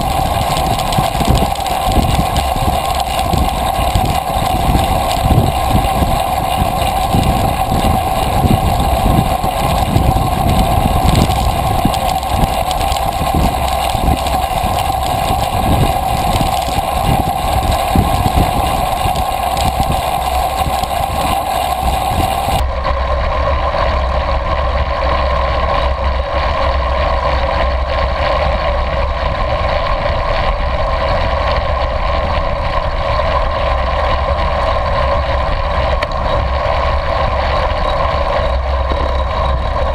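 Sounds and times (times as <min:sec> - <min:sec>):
tyre noise on asphalt: 0:00.0 - 0:22.6
wind rushing over microphone: 0:00.0 - 0:39.9.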